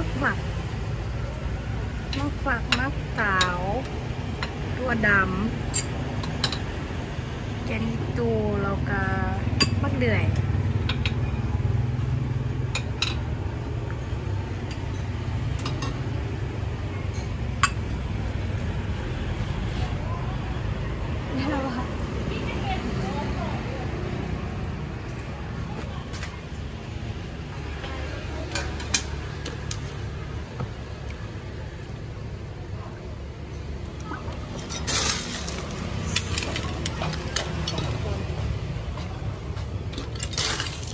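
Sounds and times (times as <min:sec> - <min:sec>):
low rumble of traffic: 0:00.0 - 0:40.9.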